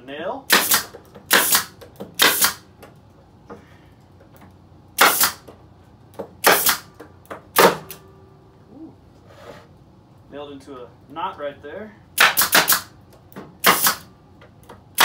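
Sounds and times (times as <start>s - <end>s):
nail gun firing into wood: 0.5s - 2.6s, 5.0s - 5.4s, 6.4s - 6.9s, 7.5s - 8.0s, 12.2s - 12.9s, 13.6s - 14.1s.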